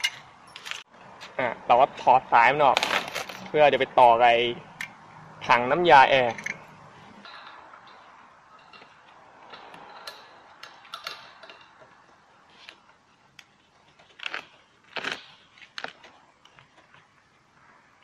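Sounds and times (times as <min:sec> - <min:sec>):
metal hose fitting clicking and scraping: 0:00.0 - 0:01.3, 0:04.7 - 0:05.0, 0:06.1 - 0:14.6.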